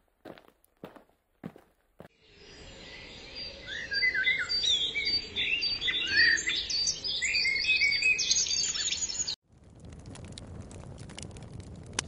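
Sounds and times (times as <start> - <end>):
songbirds chirping and singing: 2.2 - 9.4.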